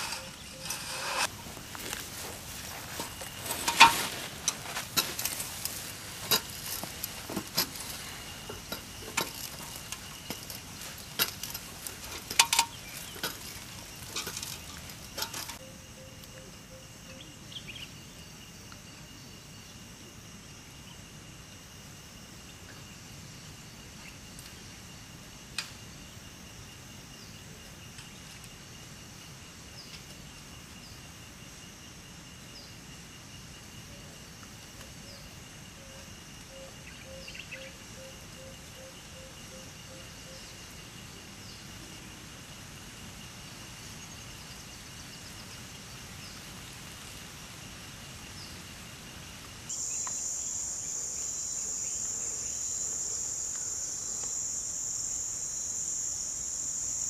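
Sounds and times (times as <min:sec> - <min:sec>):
metal ladder clinks and knocks: 0:00.0 - 0:15.6
high thin insect-like tone: 0:00.0 - 0:57.0.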